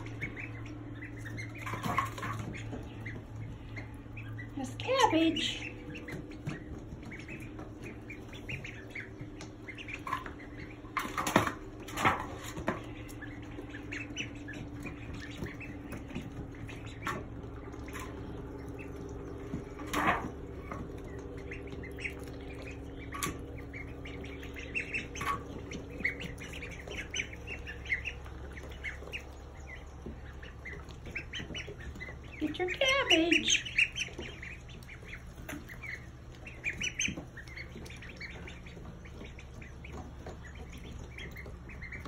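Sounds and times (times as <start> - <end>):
ducklings peeping: 0.0 - 42.0.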